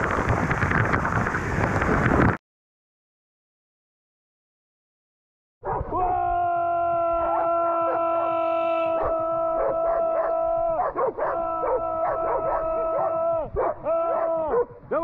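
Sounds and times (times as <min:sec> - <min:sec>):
dogs howling and yipping: 0:07.2 - 0:08.1, 0:09.0 - 0:14.7.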